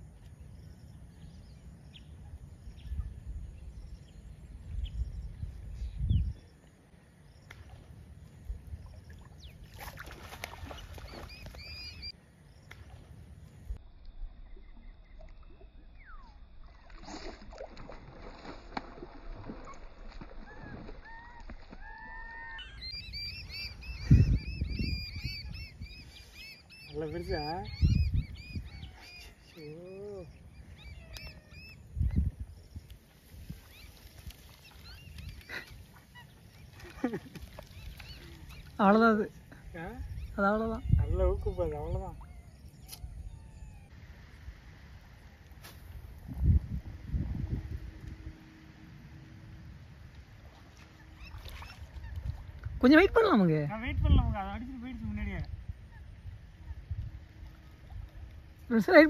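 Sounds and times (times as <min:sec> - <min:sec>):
open-air pond background: 0:00.0 - 0:59.0
bird chirping: 0:10.6 - 0:12.8, 0:22.3 - 0:32.9.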